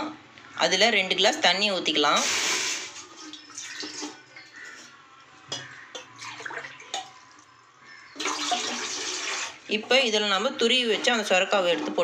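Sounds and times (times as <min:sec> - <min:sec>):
water pouring into pot: 0:02.2 - 0:04.8, 0:08.2 - 0:09.7
metal vessels clinking: 0:03.2 - 0:07.5, 0:08.2 - 0:12.0.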